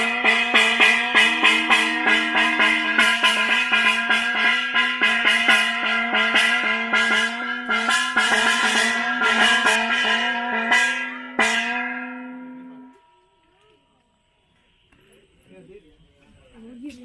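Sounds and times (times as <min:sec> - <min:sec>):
brass hand bell ringing: 0:00.0 - 0:13.4.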